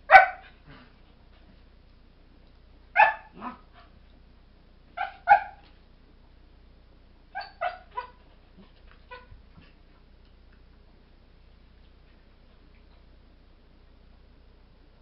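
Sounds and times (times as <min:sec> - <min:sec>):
puppies barking and yipping: 0:07.4 - 0:08.2.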